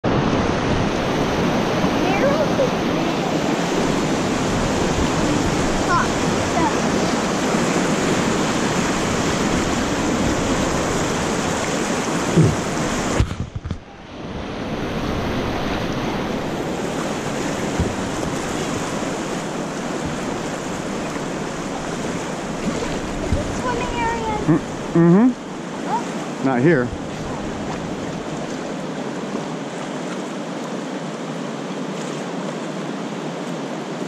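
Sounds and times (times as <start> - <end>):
river rapids rushing: 0.0 - 13.2, 14.0 - 34.0
knocks on raft: 17.6 - 18.5.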